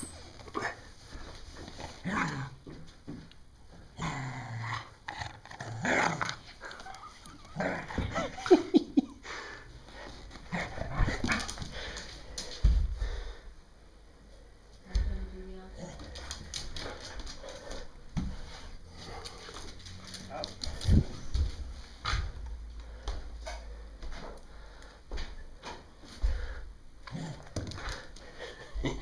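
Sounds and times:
dog growling: 0:03.9 - 0:08.3.

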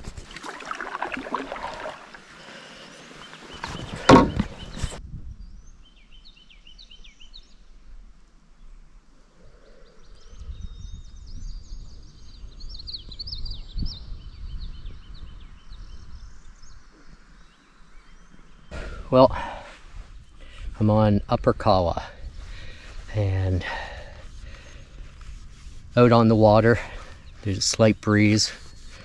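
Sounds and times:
canoe splashing through water: 0:00.0 - 0:04.8
birds singing: 0:01.2 - 0:07.7, 0:08.6 - 0:21.0, 0:22.2 - 0:25.1, 0:26.1 - 0:29.0
wind rumble on microphone: 0:03.6 - 0:29.0
hull knocking: 0:03.9 - 0:04.8.

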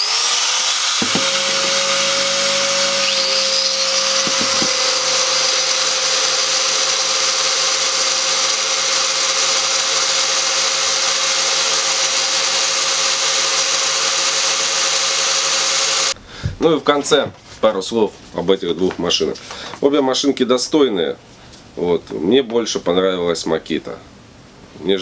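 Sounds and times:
angle grinders running: 0:00.0 - 0:16.2
grinder spinning up with rising whine: 0:00.0 - 0:16.2.

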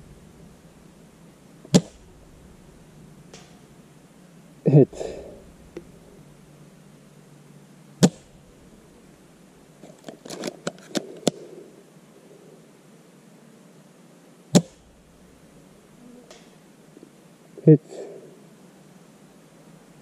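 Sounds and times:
airsoft rifle shot: 0:00.0 - 0:03.8, 0:08.0 - 0:08.8, 0:14.6 - 0:15.1.

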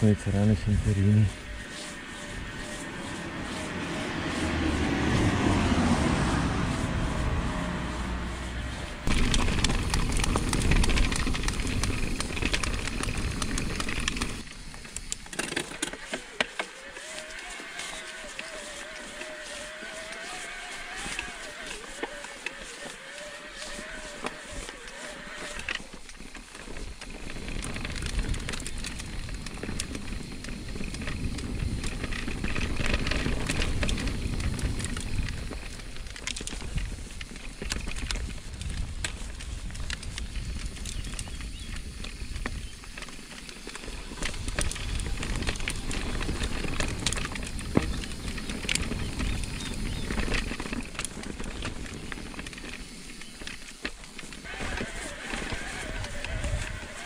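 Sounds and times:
bike clicks and rattles: 0:00.0 - 0:57.0
bike tyre noise: 0:00.0 - 0:57.0
wind noise on microphone: 0:26.7 - 0:53.6, 0:54.4 - 0:57.0.

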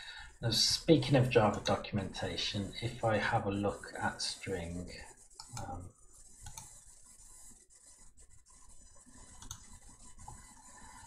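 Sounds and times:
computer mouse clicks: 0:05.4 - 0:05.8, 0:06.4 - 0:06.8, 0:09.2 - 0:10.4.

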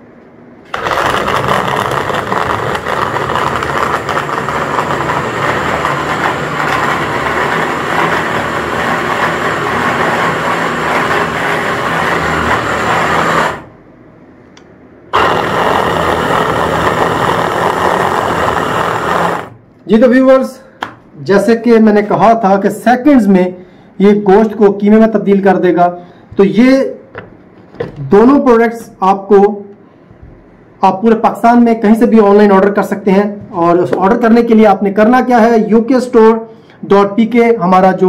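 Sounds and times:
hand blender motor mincing meat: 0:00.7 - 0:13.7, 0:15.2 - 0:19.6.

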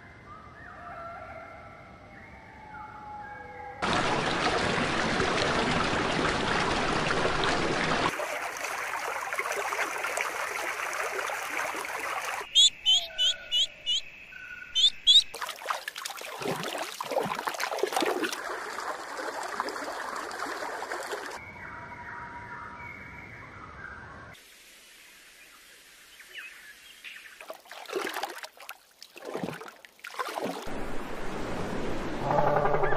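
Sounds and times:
water trickling and splashing: 0:03.8 - 0:12.5, 0:15.3 - 0:21.4, 0:24.3 - 0:32.9
faint bird calls: 0:12.5 - 0:15.3
high bird chirps: 0:12.5 - 0:15.3.

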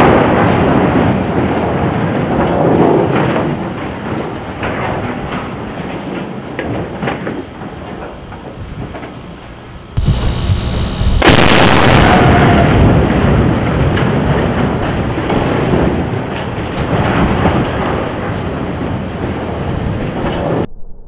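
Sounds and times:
long rumble: 0:10.0 - 0:14.6
explosive blast: 0:10.0 - 0:14.7
scattered crackles: 0:10.0 - 0:21.0.

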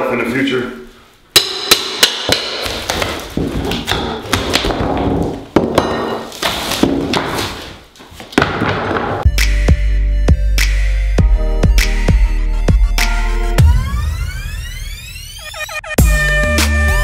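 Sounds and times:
hammer striking pry bar: 0:01.4 - 0:03.1.

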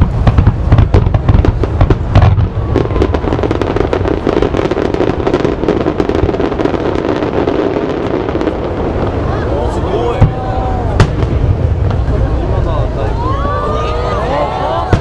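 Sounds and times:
fireworks bursting and crackling: 0:00.0 - 0:15.0
deep booms: 0:10.1 - 0:12.6.

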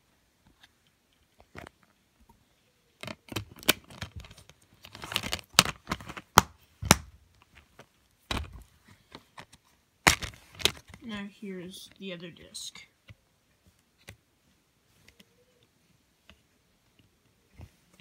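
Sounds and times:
soft rustling: 0:13.0 - 0:18.0.

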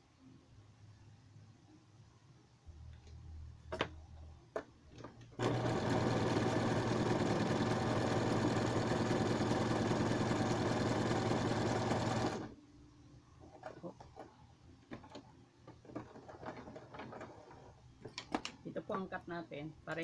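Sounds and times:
electric sewing machine running: 0:05.4 - 0:12.5.

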